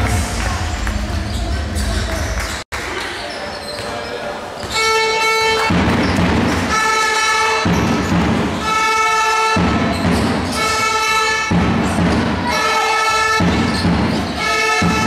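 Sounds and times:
horn blasts: 0:04.7 - 0:05.8, 0:06.6 - 0:07.7, 0:08.6 - 0:09.8, 0:10.5 - 0:11.6, 0:12.5 - 0:13.6, 0:14.3 - 0:15.0.

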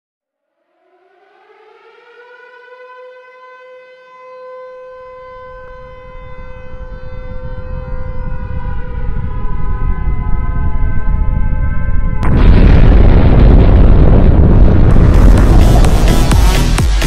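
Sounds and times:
siren-like electronic tone: 0:00.3 - 0:13.2
low rumbling build-up: 0:06.8 - 0:17.0.

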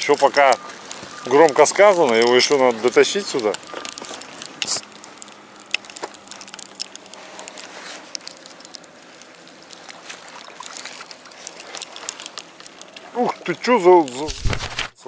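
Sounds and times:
handling rubs: 0:00.0 - 0:13.0.

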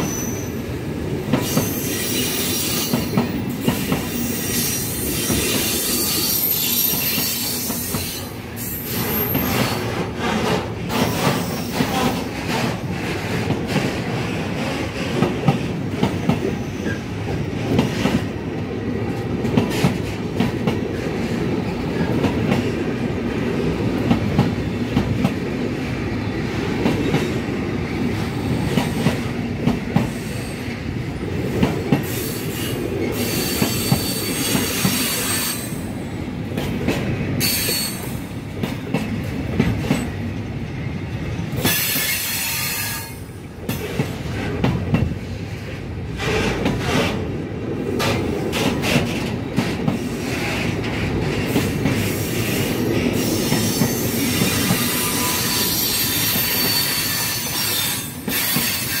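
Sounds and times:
high wheel squeal: 0:00.0 - 0:00.6, 0:01.4 - 0:03.1, 0:03.7 - 0:09.9, 0:11.1 - 0:12.0, 0:32.2 - 0:35.8, 0:53.2 - 0:59.0
train wheels rumbling on rail: 0:00.0 - 0:59.0
wheels clacking on rail joints: 0:08.9 - 0:22.9, 0:36.5 - 0:40.5, 0:41.5 - 0:47.3, 0:47.9 - 0:59.0.

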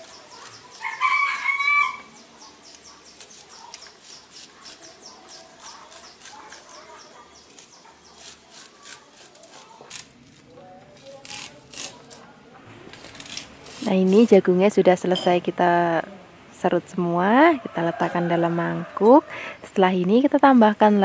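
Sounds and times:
knife scraping corn kernels: 0:00.0 - 0:01.0, 0:02.8 - 0:10.1.

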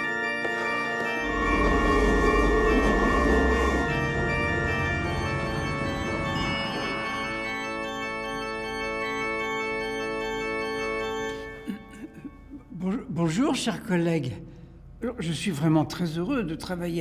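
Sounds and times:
film music of held chords: 0:00.0 - 0:12.7.

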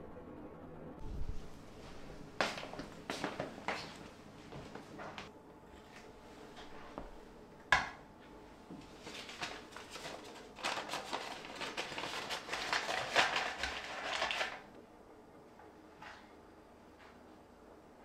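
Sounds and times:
crisp rustling and crackling: 0:08.9 - 0:14.7.

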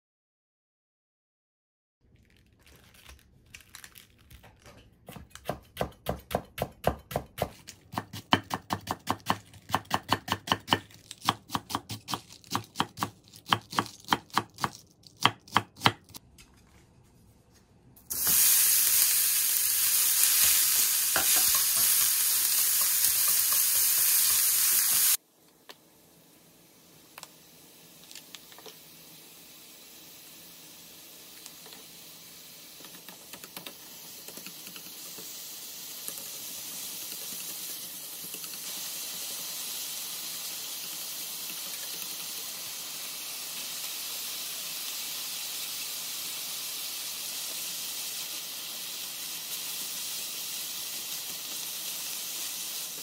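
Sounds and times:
meat sizzling in a pan: 0:18.1 - 0:25.2, 0:26.0 - 0:53.0.

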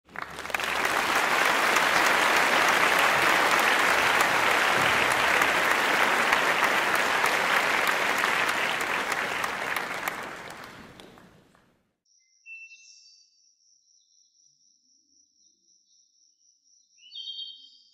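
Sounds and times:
applause: 0:00.0 - 0:11.7.

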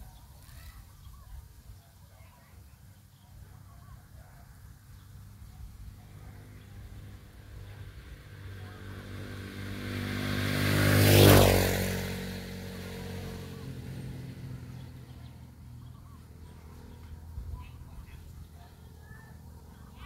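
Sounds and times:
vehicle driving past: 0:05.2 - 0:20.0.

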